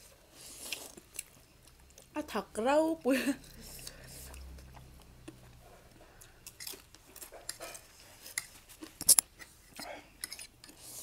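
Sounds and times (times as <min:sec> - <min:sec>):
noodles slurped and chewed: 0:00.1 - 0:02.2, 0:03.4 - 0:09.0.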